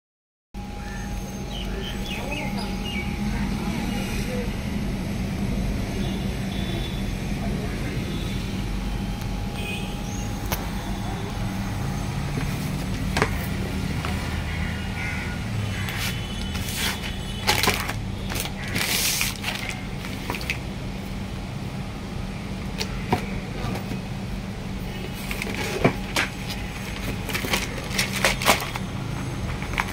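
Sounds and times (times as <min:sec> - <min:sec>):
steady low hum: 0:00.6 - 0:29.9
paper rustling and crinkling: 0:15.9 - 0:20.6, 0:25.1 - 0:29.9.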